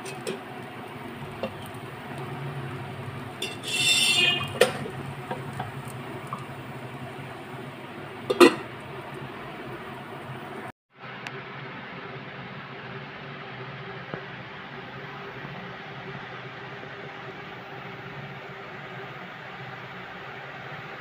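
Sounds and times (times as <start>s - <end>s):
spoon scraping metal pot: 0.0s - 7.5s, 8.2s - 8.8s
pot lid clanking: 0.0s - 9.2s
steady low hum: 0.0s - 10.7s.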